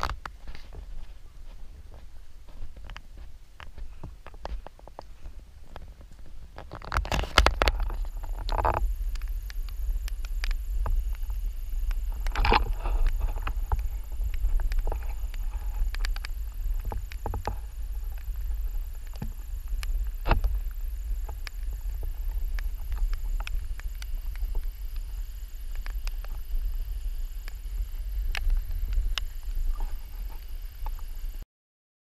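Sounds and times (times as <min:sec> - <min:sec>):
footsteps on metal mesh bridge: 0:00.0 - 0:06.4
wind rumble on microphone: 0:00.0 - 0:31.4.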